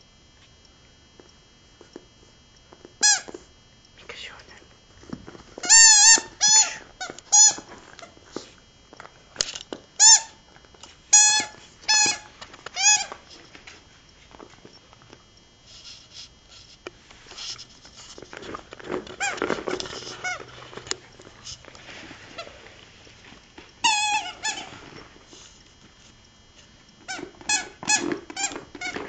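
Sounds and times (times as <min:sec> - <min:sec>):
squeaky dog toy squeaking: 0:05.6 - 0:07.6, 0:11.1 - 0:12.2, 0:23.8 - 0:24.7.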